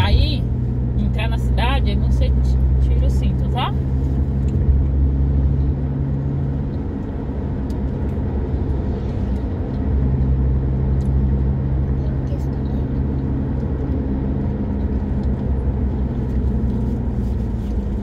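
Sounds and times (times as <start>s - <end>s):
car engine and road drone: 0.0s - 18.0s.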